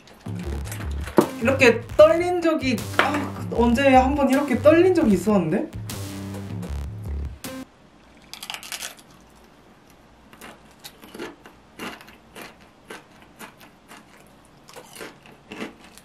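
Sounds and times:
chip crunching while chewed: 8.2 - 16.0.

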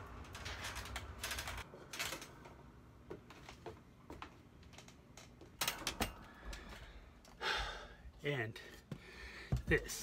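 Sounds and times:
shoes knocking on wooden ladder: 9.5 - 10.0.

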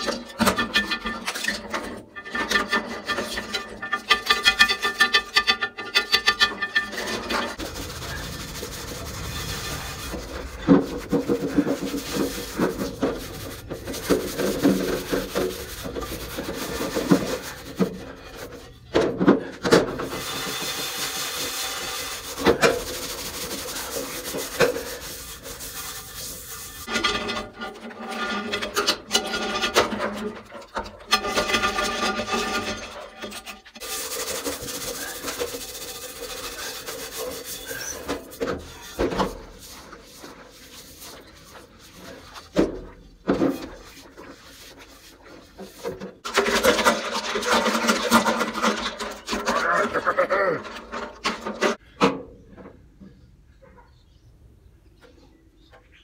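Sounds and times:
scrubbing pad rasping on pan: 6.2 - 18.5, 19.9 - 27.4, 33.8 - 50.2.

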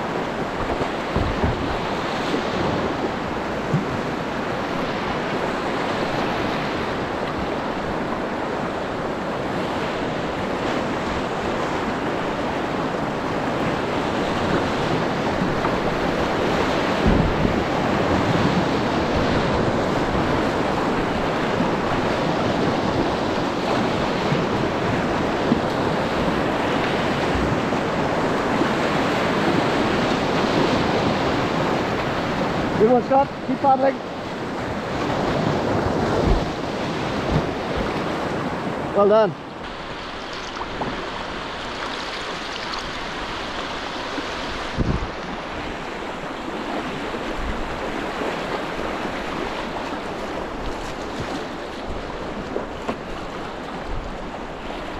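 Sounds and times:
wind buffeting microphone: 0.0 - 54.9
white-water rapids over rocks: 35.8 - 54.6.

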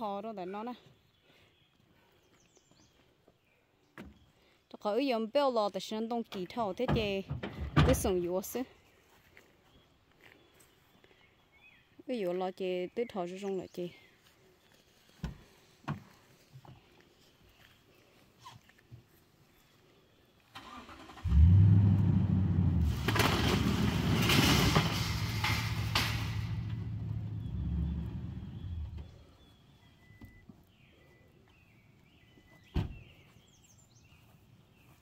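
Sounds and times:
truck engine starting and running: 20.5 - 29.2
faint bird chirps: 27.4 - 35.0.

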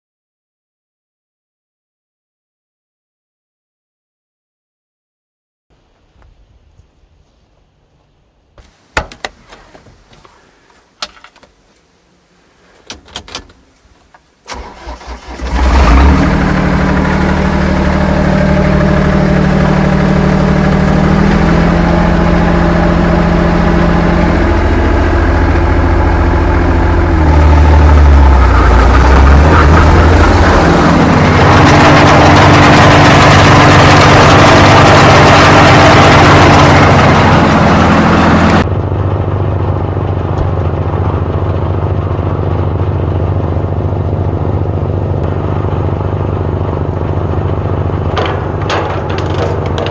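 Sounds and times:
engine starter cranking: 14.4 - 16.9
diesel engine running: 14.5 - 49.9.

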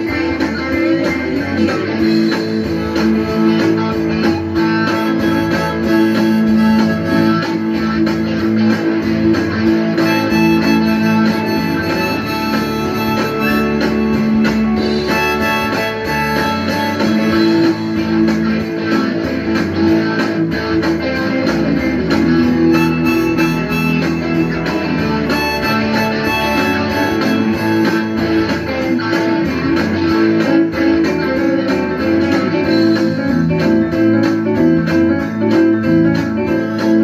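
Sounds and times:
strummed guitar: 0.0 - 37.0
harmonica playing long notes: 4.6 - 8.1, 9.9 - 18.1, 22.4 - 28.8.

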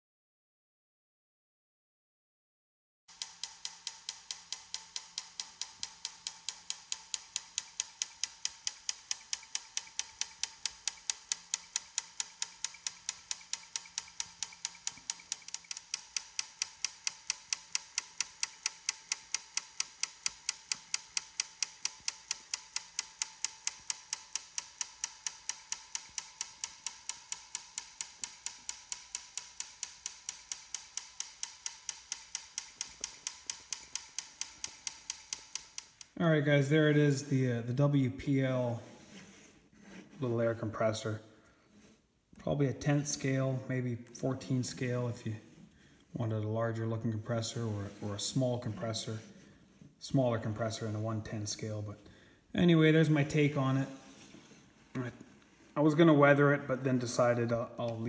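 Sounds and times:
rapid mechanical ticking: 3.1 - 36.2.

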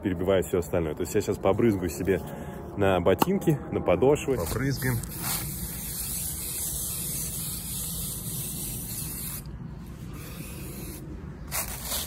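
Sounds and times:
aerosol spray hissing: 5.1 - 9.5, 10.1 - 11.0.

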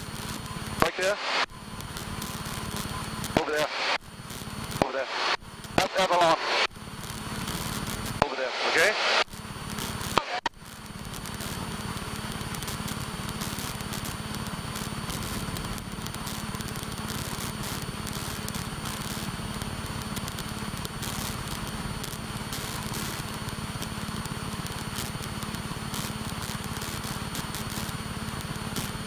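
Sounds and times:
light aircraft engine drone: 0.0 - 29.0.

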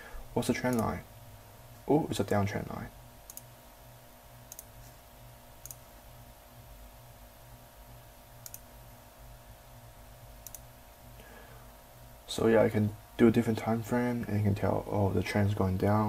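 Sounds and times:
faint steady hum: 0.0 - 16.0
computer mouse clicking: 0.7 - 0.9, 3.3 - 3.5, 4.5 - 5.0, 5.6 - 5.8, 8.4 - 8.7, 10.4 - 10.7.

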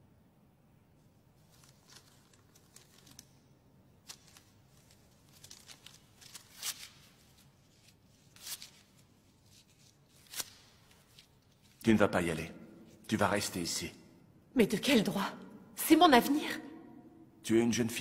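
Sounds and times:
paper rustling and crackling: 1.4 - 11.8.

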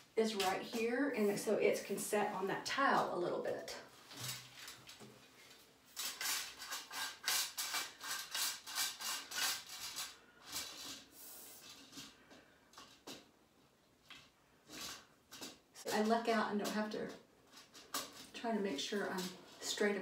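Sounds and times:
curtain rod scraping on walls: 4.0 - 12.2, 14.6 - 20.0.

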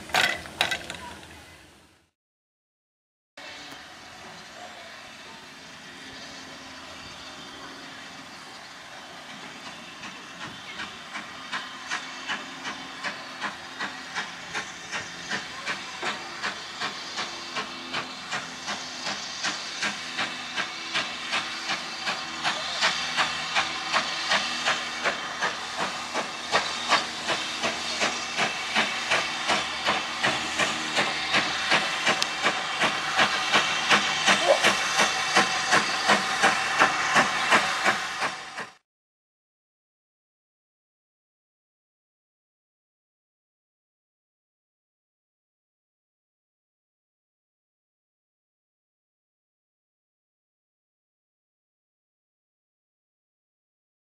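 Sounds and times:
hiss of steam: 3.4 - 38.8
locomotive clicking beats: 9.3 - 38.8.

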